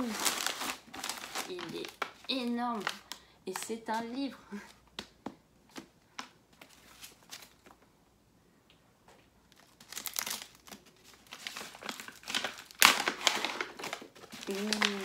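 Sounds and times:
wrapping paper crinkling and tearing: 0.0 - 4.2, 9.5 - 15.0.

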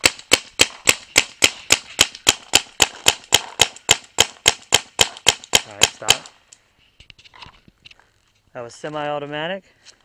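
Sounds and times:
paintball marker shots: 0.0 - 6.4.

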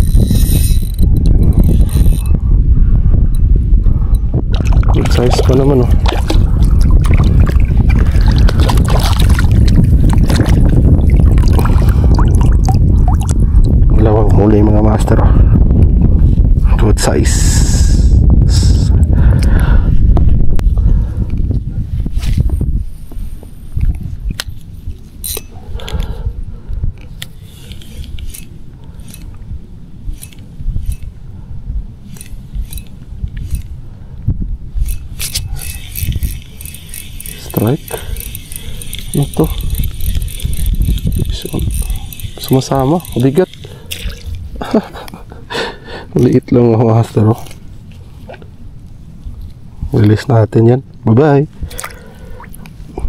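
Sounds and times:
fishing tackle clicking: 0.0 - 2.3, 23.8 - 26.2, 26.9 - 29.5, 30.1 - 31.2, 32.1 - 33.8, 34.8 - 44.4
wind buffeting microphone: 0.0 - 53.0
water splashes: 4.5 - 13.4.

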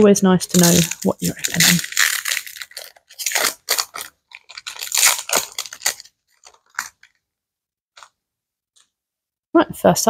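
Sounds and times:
foil wrapper crinkling: 0.4 - 7.2.

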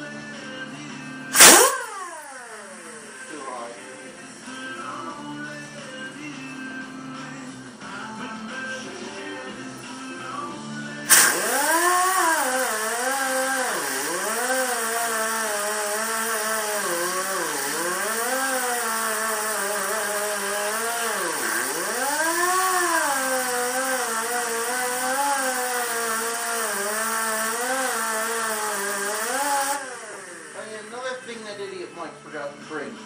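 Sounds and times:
air angle grinder whining: 1.3 - 4.5, 11.1 - 31.8.

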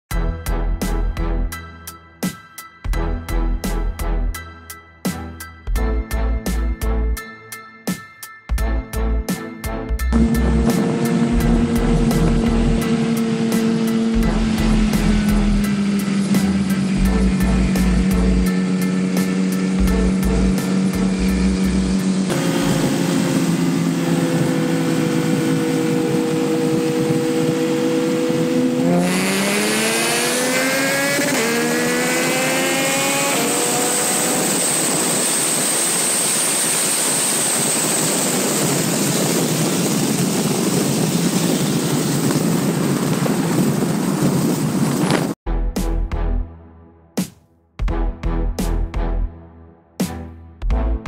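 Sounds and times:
wind noise at speed: 10.1 - 45.4
car and motorcycle engines revving: 10.2 - 36.3.

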